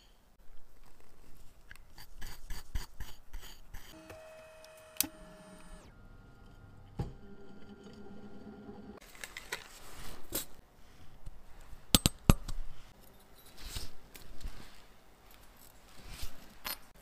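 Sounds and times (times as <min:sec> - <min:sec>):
cleaning machine motor humming: 0:04.0 - 0:09.0.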